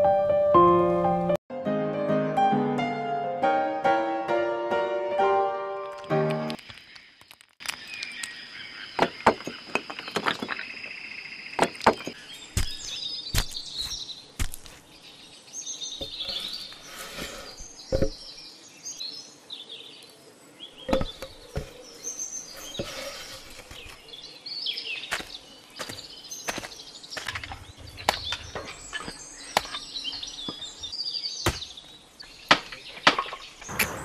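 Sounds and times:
birds chirping: 0:06.0 - 0:34.0
stones knocking together: 0:09.0 - 0:10.7, 0:11.6 - 0:14.8, 0:20.9 - 0:21.8, 0:25.1 - 0:30.7
logs knocking together: 0:32.5 - 0:33.4.

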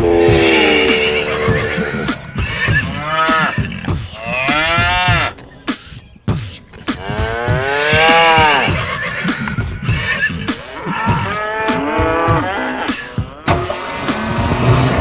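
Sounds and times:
cow mooing: 0:00.0 - 0:05.4, 0:07.0 - 0:13.4.

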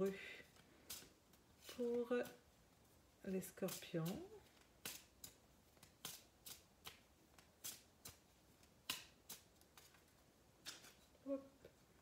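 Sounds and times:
playing cards slapping: 0:00.6 - 0:02.4, 0:03.7 - 0:11.0.

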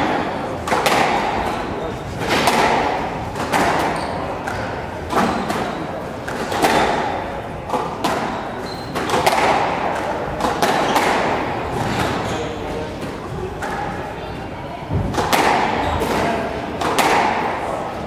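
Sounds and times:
squash ball hits: 0:00.0 - 0:12.4, 0:14.9 - 0:17.7
shoe squeak: 0:03.9 - 0:04.4, 0:05.2 - 0:06.0, 0:08.3 - 0:09.1, 0:12.2 - 0:12.8.

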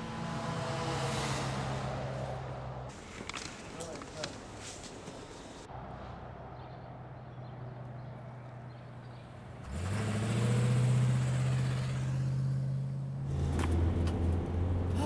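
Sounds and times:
vehicle engine accelerating: 0:00.0 - 0:03.0, 0:07.7 - 0:15.0.

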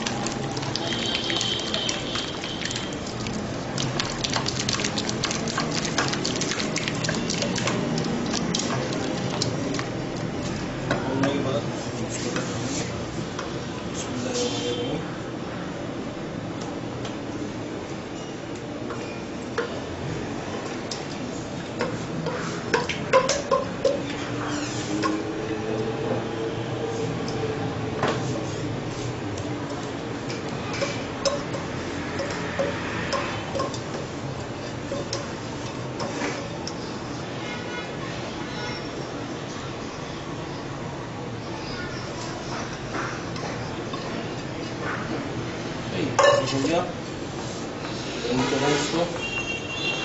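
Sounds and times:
spoon clicking and scraping pot: 0:30.7 - 0:36.9.

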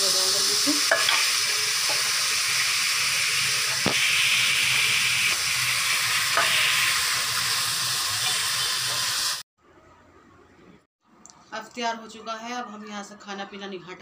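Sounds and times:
pot sizzling: 0:00.0 - 0:09.4.

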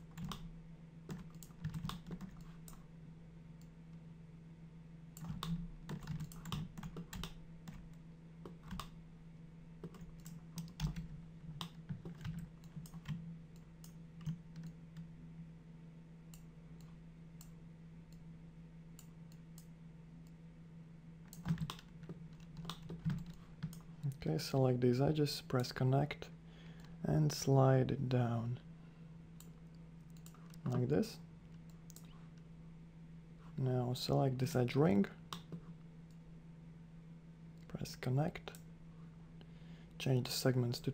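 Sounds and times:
steady low hum: 0:00.0 - 0:40.9
keyboard and mouse clicks: 0:00.1 - 0:00.5, 0:01.1 - 0:02.8, 0:05.2 - 0:09.0, 0:09.8 - 0:15.1, 0:21.3 - 0:23.9.

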